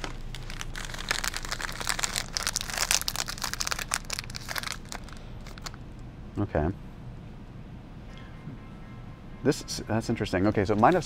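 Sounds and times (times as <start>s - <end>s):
plastic wrapper crinkling: 0.0s - 5.8s.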